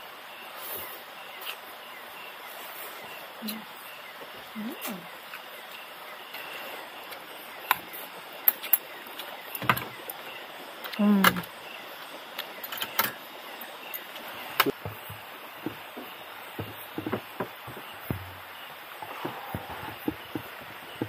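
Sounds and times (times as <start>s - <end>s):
steady background hiss: 0.0s - 21.0s
camping gear knocks and clicks: 7.6s - 10.2s, 12.4s - 21.0s.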